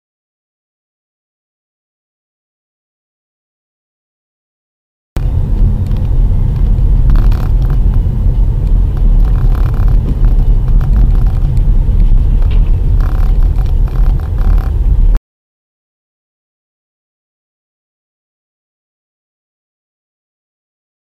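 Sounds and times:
car driving on wet road: 0:05.2 - 0:15.2.

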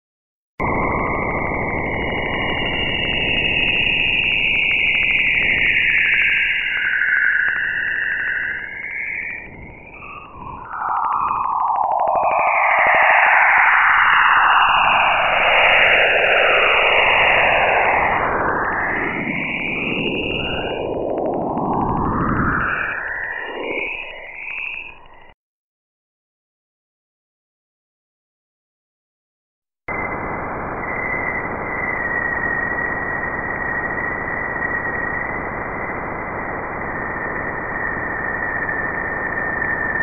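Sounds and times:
whistling tones gliding in pitch: 0:00.6 - 0:25.4.

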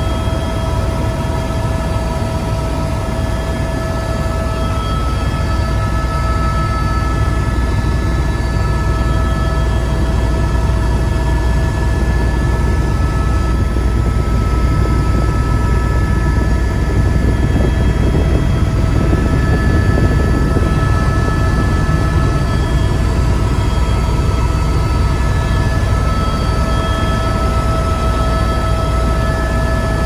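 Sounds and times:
helicopter rotor and engine rumble: 0:00.0 - 0:30.0
high whining tones: 0:01.9 - 0:30.0.

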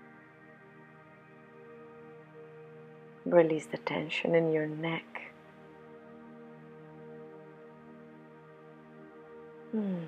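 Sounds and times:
ambient music with drone tones: 0:00.0 - 0:10.0
woman sighing: 0:09.7 - 0:10.0.

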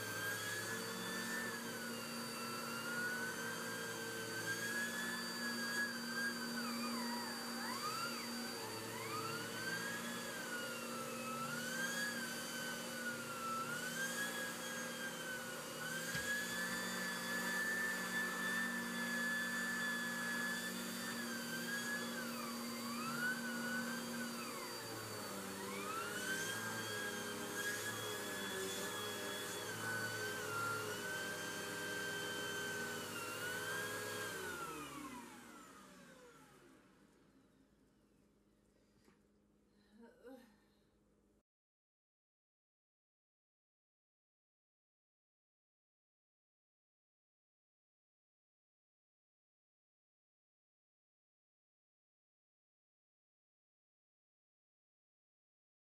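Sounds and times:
vacuum cleaner motor whine: 0:00.0 - 0:37.7.

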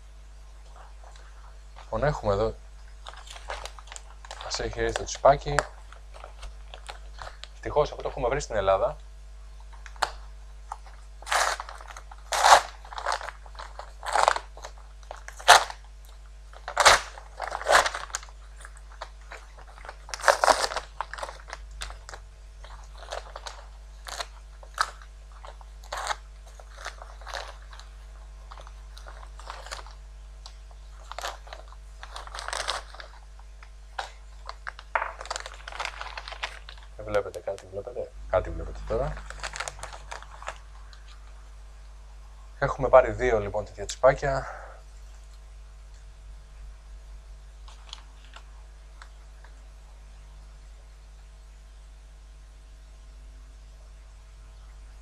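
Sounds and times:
steady low hum: 0:00.0 - 0:55.0
plastic packaging crinkling: 0:00.6 - 0:08.6, 0:09.6 - 0:41.4, 0:47.6 - 0:49.5.

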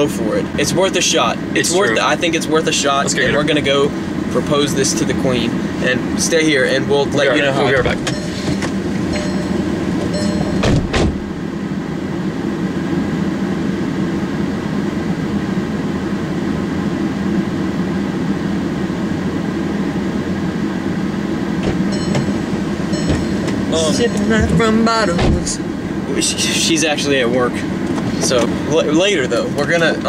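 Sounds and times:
car engine idling hum: 0:00.0 - 0:30.0
car door thudding shut: 0:10.5 - 0:11.3, 0:25.1 - 0:25.6.

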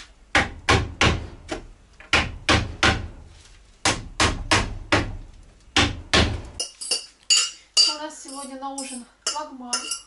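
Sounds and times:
hammer striking nails into wood: 0:00.3 - 0:03.2, 0:03.8 - 0:06.5.

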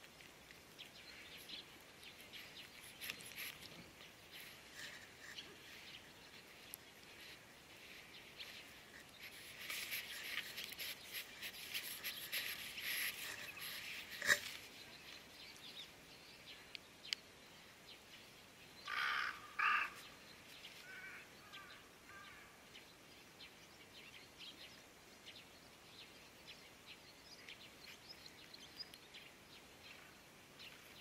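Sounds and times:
small birds chirping: 0:00.0 - 0:31.0
crow cawing: 0:18.9 - 0:20.0.

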